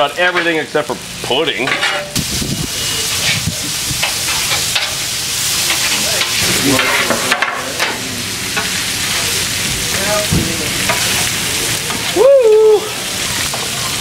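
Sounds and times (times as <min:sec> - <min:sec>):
meat sizzling on griddle: 0:00.0 - 0:14.0
metal spatula scraping and tapping: 0:01.6 - 0:02.2.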